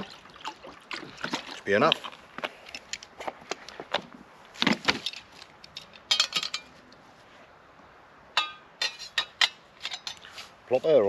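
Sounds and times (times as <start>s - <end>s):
metal cookware knocking and clinking: 6.1s - 6.7s, 8.4s - 10.2s.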